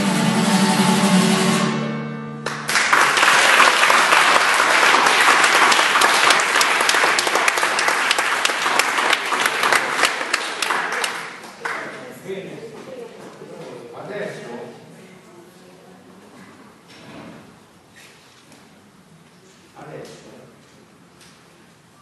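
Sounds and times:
audience applause: 0:02.4 - 0:12.2.

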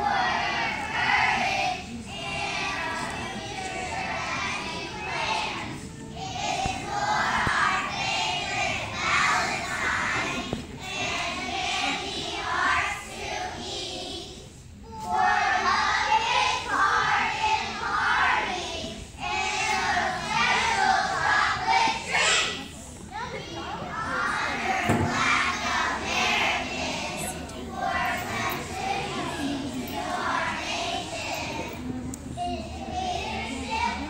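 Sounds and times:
young children's voices in unison: 0:00.0 - 0:34.0.

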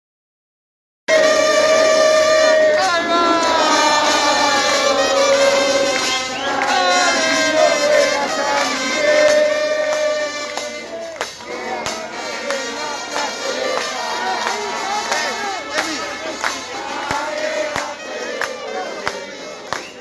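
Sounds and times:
crowd singing a chant: 0:01.1 - 0:20.0.

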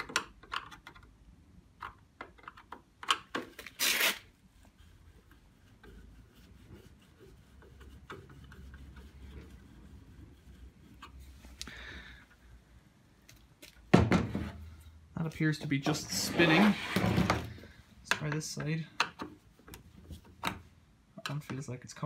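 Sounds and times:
faint rubbing: 0:03.9 - 0:11.6.

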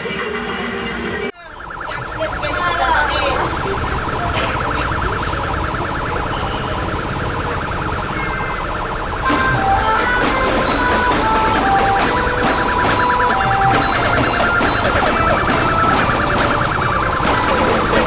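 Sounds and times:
music: 0:00.0 - 0:01.3, 0:09.3 - 0:18.0
street noise: 0:00.0 - 0:18.0
pulsing siren-like electronic tone: 0:01.3 - 0:18.0.

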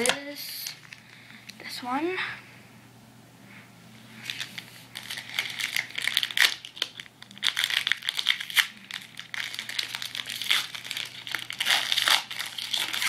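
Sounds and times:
foil wrapper tearing and crinkling: 0:04.3 - 0:13.0.

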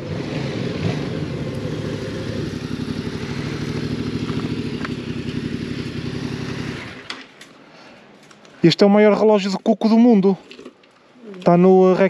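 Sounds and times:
motorcycle engine running: 0:00.0 - 0:07.1.

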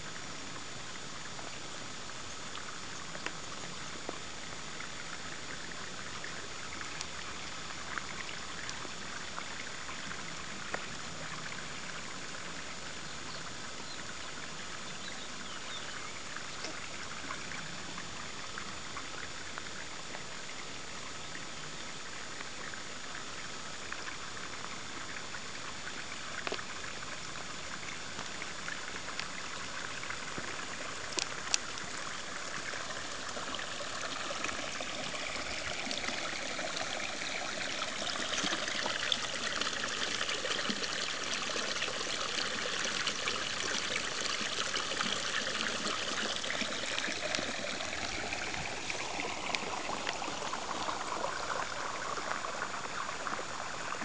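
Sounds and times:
water pouring into pool: 0:23.2 - 0:54.0.

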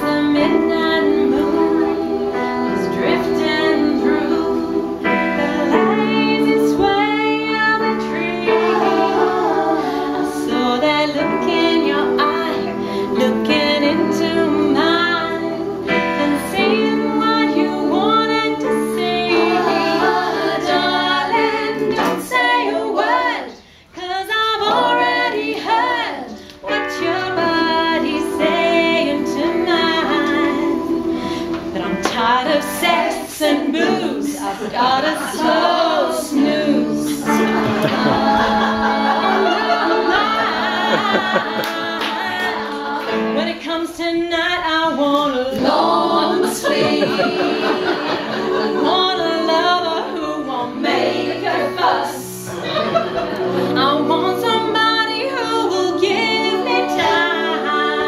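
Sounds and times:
women's vocal group singing: 0:00.0 - 0:58.0.

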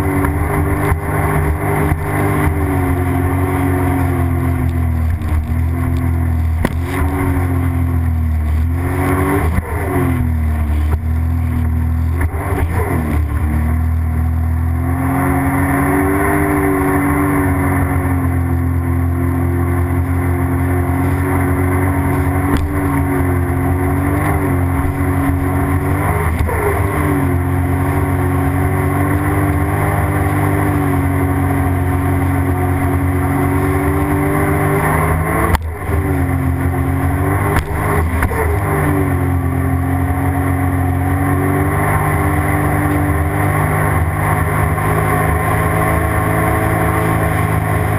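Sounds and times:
jet ski engine running: 0:00.0 - 0:47.9.

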